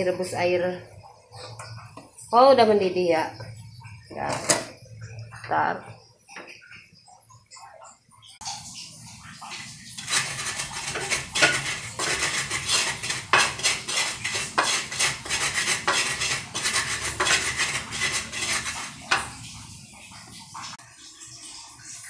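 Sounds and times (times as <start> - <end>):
utensils knocking on counter: 10.0 - 19.4.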